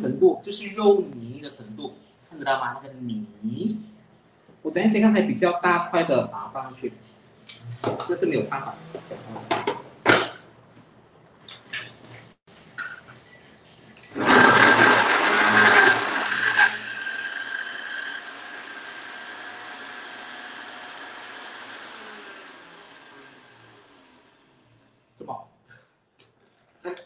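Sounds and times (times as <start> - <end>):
blender motor grinding: 14.1 - 24.6.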